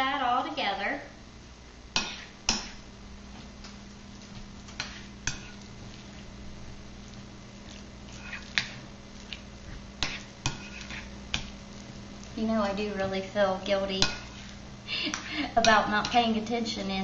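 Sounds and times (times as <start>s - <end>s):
fork mashing food in a bowl: 1.9s - 2.8s, 4.1s - 16.4s.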